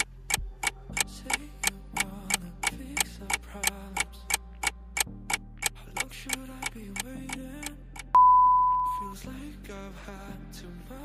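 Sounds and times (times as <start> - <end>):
clock ticking: 0.0 - 1.4
soft background music: 0.0 - 11.0.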